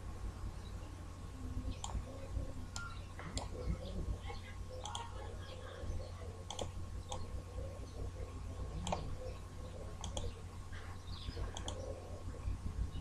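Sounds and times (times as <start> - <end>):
faint low hum: 0.0 - 13.0
computer mouse clicking: 1.7 - 2.1, 4.8 - 5.1, 6.5 - 7.3, 8.8 - 9.2, 10.0 - 10.4, 11.2 - 11.9.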